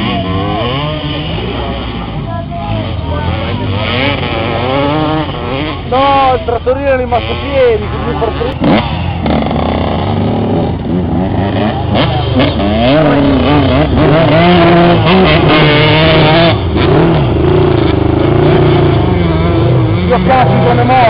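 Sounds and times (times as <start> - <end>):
small engine revving hard: 0.0 - 6.4, 7.1 - 21.0.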